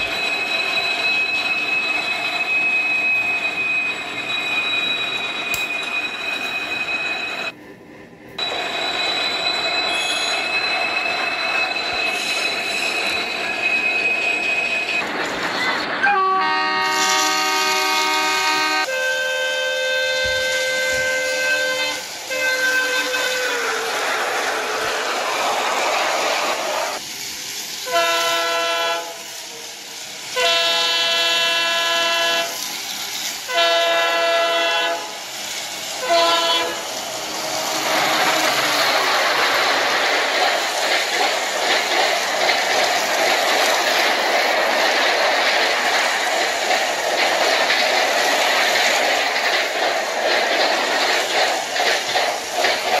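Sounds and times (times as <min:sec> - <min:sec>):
toy train electronic horn: 0:16.1 - 0:23.7, 0:27.9 - 0:29.3, 0:30.4 - 0:32.6, 0:33.5 - 0:35.2, 0:36.0 - 0:38.7
toy train clattering on track: 0:37.9 - 0:53.0.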